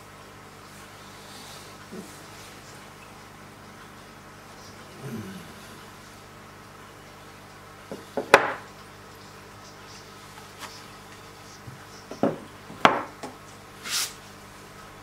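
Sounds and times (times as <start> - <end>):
short hissing scrape: 13.8 - 14.2.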